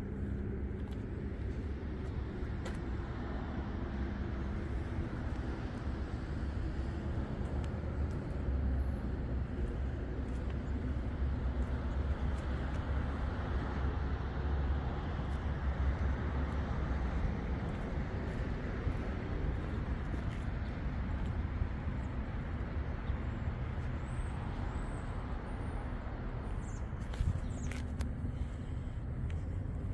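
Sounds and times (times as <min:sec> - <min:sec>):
vehicle engine idling: 0:00.0 - 0:29.9.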